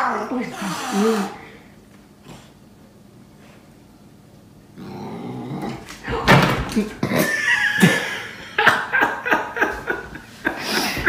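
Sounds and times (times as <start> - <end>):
person laughing: 7.0 - 11.0.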